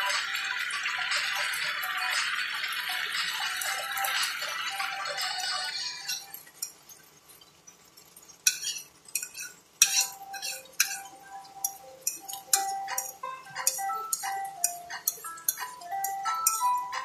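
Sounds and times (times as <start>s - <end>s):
utensil clinking against crockery: 8.5s - 17.0s.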